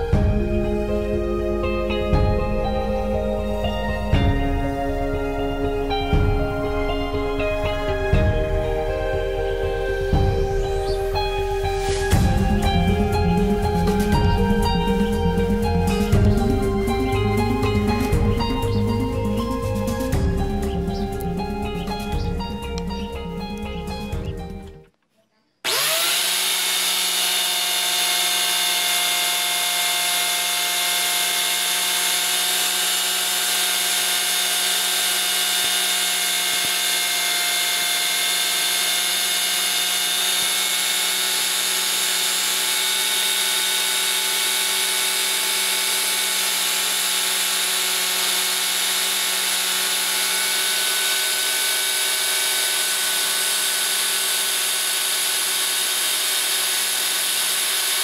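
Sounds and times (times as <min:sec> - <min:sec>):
angle grinder whining: 0:00.0 - 0:24.9, 0:25.6 - 0:58.0
blade sanded against disc: 0:25.7 - 0:58.0.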